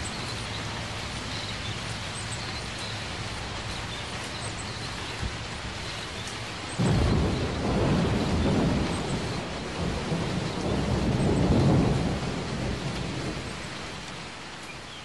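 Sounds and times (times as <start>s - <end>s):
steady rain: 0.0s - 15.0s
rolling thunder: 6.8s - 13.9s.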